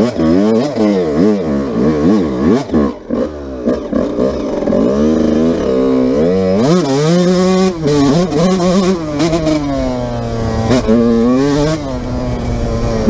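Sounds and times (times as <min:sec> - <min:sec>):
motorcycle engine revving: 0:00.0 - 0:13.0.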